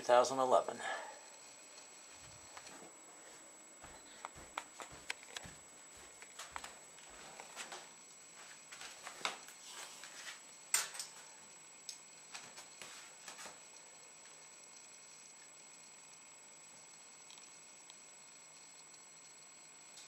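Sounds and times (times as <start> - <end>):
faint steady high tone: 3.8 - 4.4.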